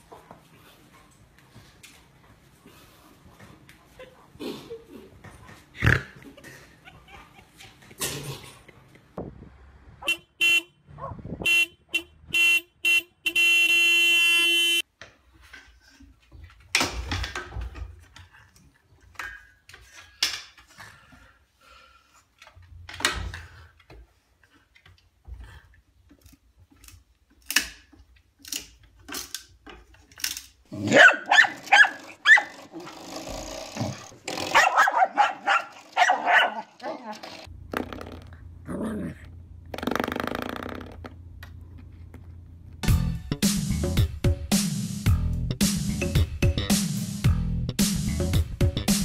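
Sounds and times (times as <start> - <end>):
car horn honking: 10.0 - 14.8
dog barking: 11.0 - 11.3, 30.8 - 32.5, 34.5 - 37.1.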